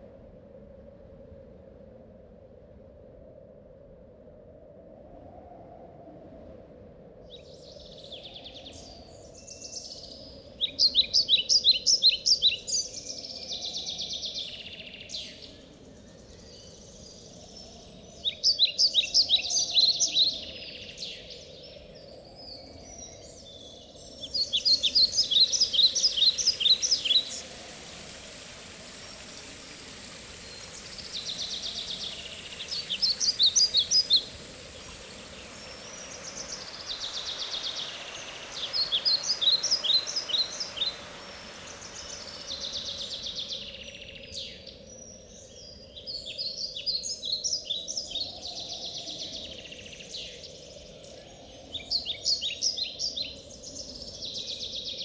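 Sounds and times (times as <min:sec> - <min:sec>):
songbird trilling: 0:24.2 - 0:28.0, 0:30.0 - 0:41.0.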